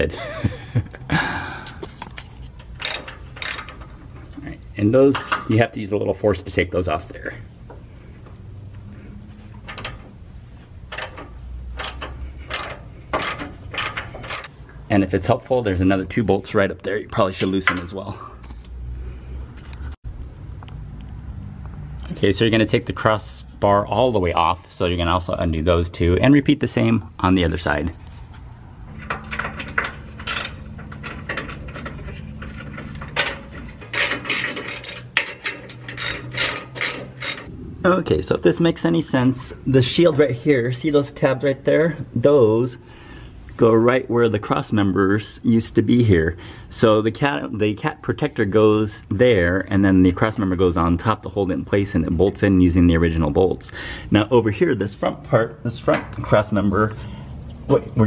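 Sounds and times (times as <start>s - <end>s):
low steady hum: 0.1s - 52.5s
ratchet wrench pawl clicking: 2.8s - 3.7s, 11.9s - 14.5s, 35.9s - 37.5s.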